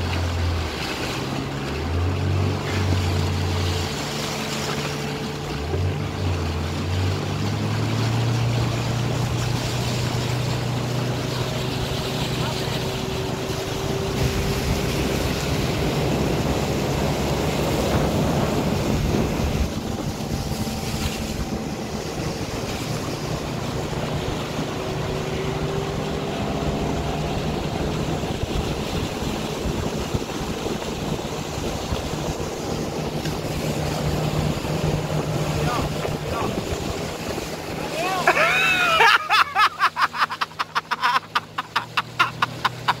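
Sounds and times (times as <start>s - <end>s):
outboard motor humming: 0.0s - 43.0s
water rushing along a hull: 0.0s - 43.0s
wind on the microphone: 13.7s - 24.5s.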